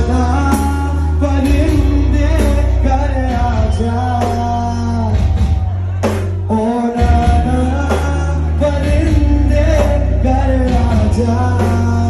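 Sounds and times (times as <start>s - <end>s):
heavy steady bass: 0.0s - 12.0s.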